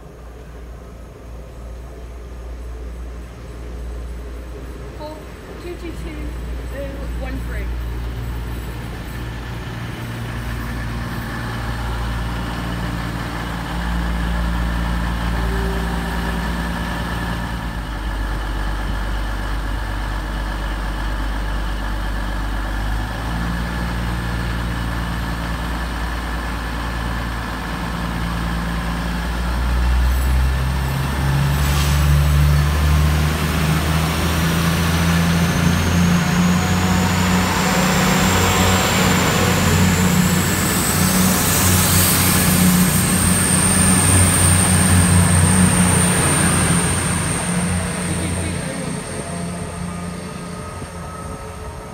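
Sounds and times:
diesel train engines running: 0:00.0 - 0:51.9
thin whine rising in pitch: 0:08.3 - 0:18.4, 0:33.4 - 0:51.9.

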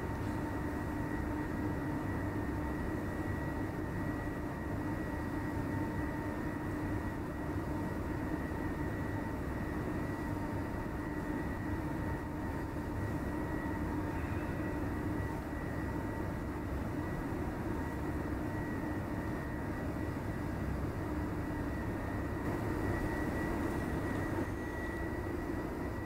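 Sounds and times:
faint hum: 0:00.0 - 0:26.0
steady rumbling background noise: 0:09.2 - 0:26.0.

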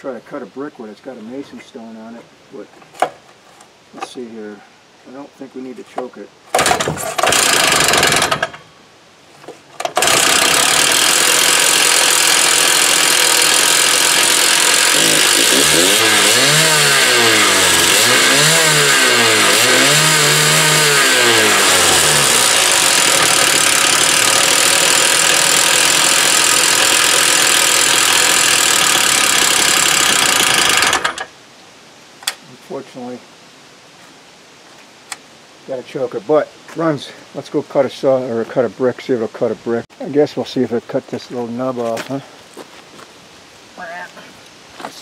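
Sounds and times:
cut-off saw engine running: 0:06.6 - 0:08.6, 0:09.9 - 0:31.3.

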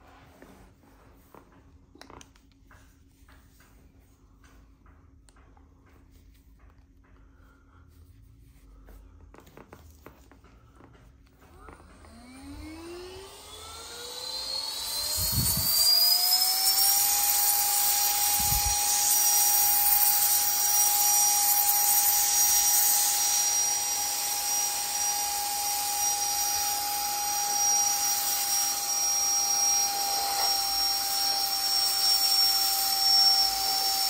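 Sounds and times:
vacuum motor whining: 0:10.8 - 0:34.0
air rushing through hose: 0:14.8 - 0:23.7.

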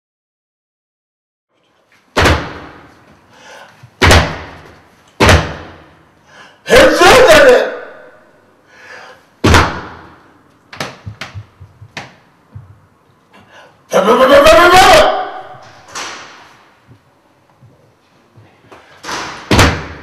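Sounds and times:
loud echoing thuds: 0:02.2 - 0:02.9, 0:04.0 - 0:06.0, 0:09.4 - 0:10.2, 0:19.0 - 0:20.0
person yelling: 0:06.7 - 0:08.2, 0:13.9 - 0:15.6.

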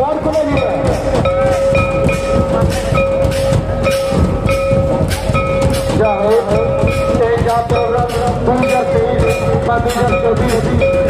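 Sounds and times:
drums beating fast rhythm: 0:00.0 - 0:11.0.

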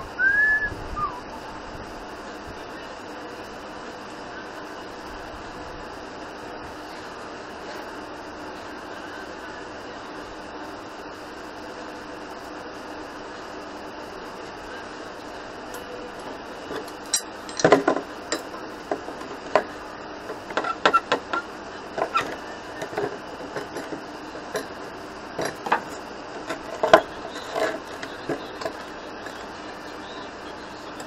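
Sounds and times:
chain links clanking: 0:16.7 - 0:18.6, 0:25.4 - 0:28.0.

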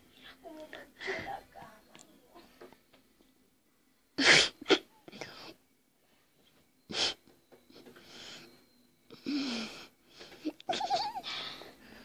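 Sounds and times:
girl giggling: 0:10.4 - 0:11.6
high-pitched laugh: 0:10.6 - 0:11.3.

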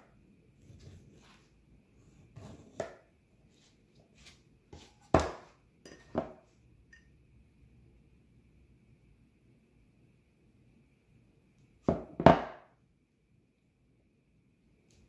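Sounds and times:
ceramic bowl being handled: 0:02.3 - 0:07.1.

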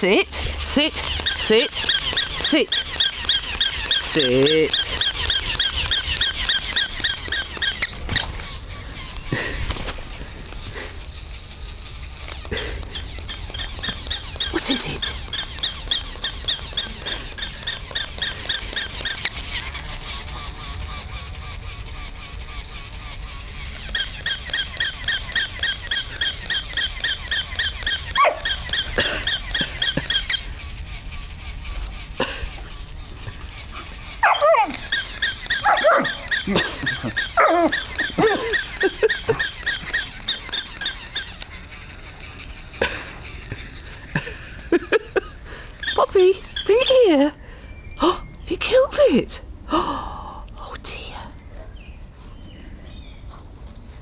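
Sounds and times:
toy dog squeaky yaps: 0:00.6 - 0:09.1, 0:12.9 - 0:20.6, 0:23.6 - 0:31.2, 0:33.5 - 0:42.4, 0:45.8 - 0:47.1
low sliding yelps: 0:27.6 - 0:28.6, 0:34.2 - 0:40.1.

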